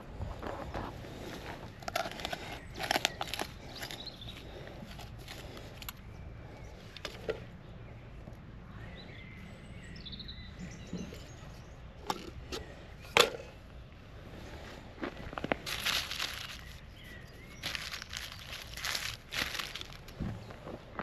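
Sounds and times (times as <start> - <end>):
bird chirping: 1.6 - 12.0, 15.7 - 20.7
trowel scraping garden soil: 1.8 - 5.9, 15.5 - 20.2.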